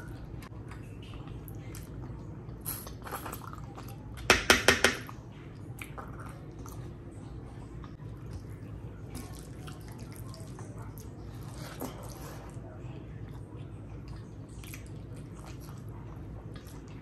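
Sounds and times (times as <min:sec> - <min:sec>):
wet squishing of rice: 0:07.8 - 0:17.0.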